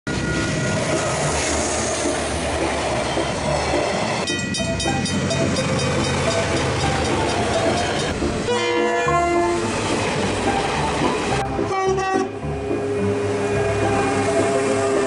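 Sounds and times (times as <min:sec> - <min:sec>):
diesel freight train passing: 0:00.1 - 0:15.0
level crossing bells ringing: 0:04.2 - 0:08.2.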